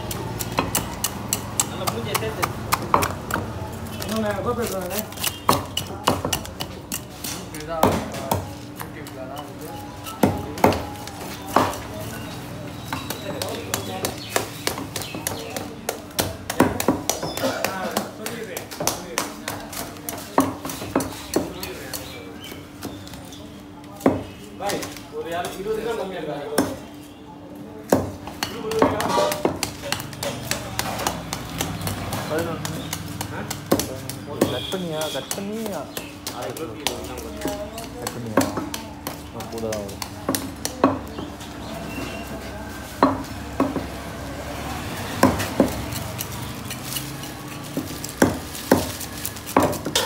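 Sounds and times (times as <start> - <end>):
knife scraping and clatter: 28.4 - 31.2, 45.8 - 50.0.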